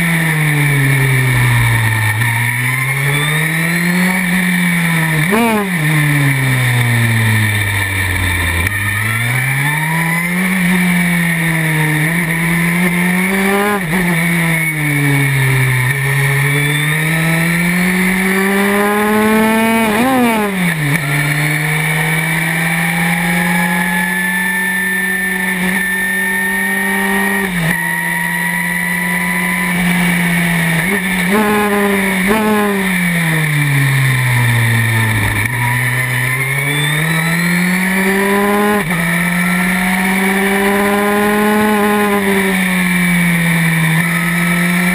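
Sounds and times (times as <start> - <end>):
racing car engine revving: 0.0 - 44.9.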